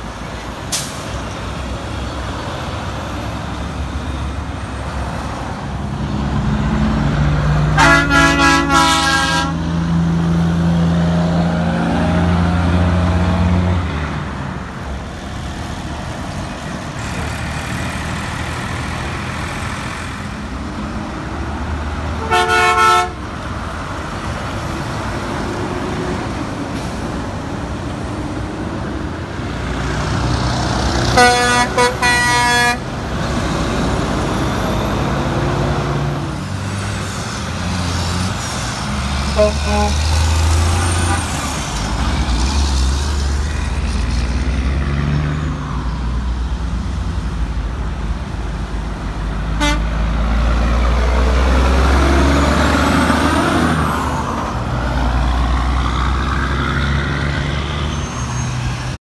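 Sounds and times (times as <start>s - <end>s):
truck diesel engines passing: 0.0s - 59.0s
truck horn blast: 7.7s - 9.7s, 22.2s - 23.2s, 31.1s - 32.9s, 39.3s - 41.4s, 49.6s - 50.0s.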